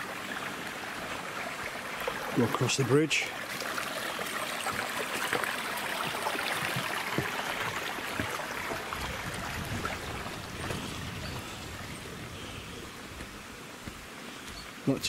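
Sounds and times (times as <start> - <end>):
small stream running: 0.0 - 15.0
footsteps on dry leaves: 13.0 - 14.6.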